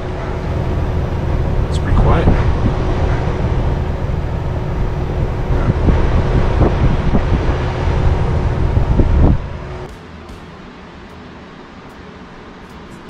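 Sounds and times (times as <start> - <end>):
wind noise on microphone: 0.0 - 9.9
condenser fan rushing: 0.0 - 13.0
faint steady hum: 0.0 - 13.0.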